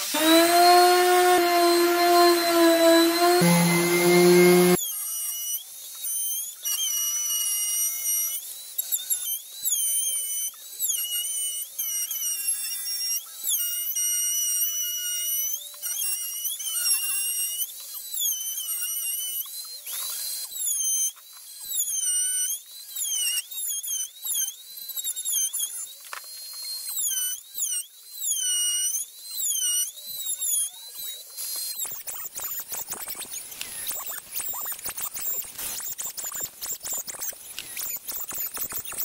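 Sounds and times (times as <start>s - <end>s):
router cutting wood: 0.0s - 12.4s, 28.5s - 39.0s.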